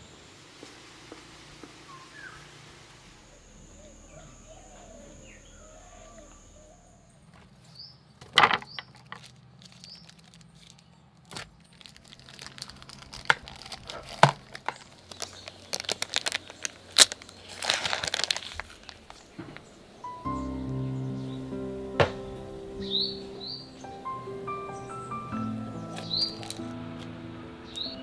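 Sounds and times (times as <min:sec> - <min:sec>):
baking paper crinkling and tearing: 0:07.3 - 0:19.4, 0:25.9 - 0:26.7
sharp clicks and crackles: 0:08.3 - 0:19.7, 0:25.9 - 0:27.1.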